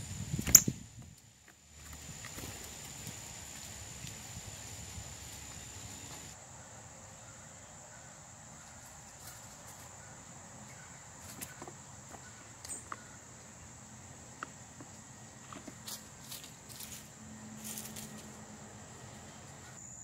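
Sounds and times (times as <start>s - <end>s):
high-pitched insect trill: 1.6s - 6.4s, 19.8s - 20.0s.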